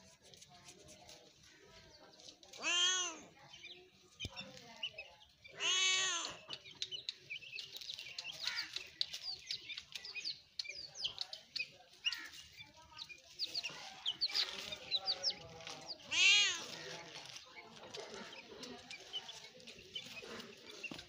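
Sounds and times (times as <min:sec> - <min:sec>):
birds chirping: 0:01.0 - 0:21.0
cat meowing: 0:02.6 - 0:03.3, 0:05.6 - 0:06.4, 0:16.1 - 0:16.7.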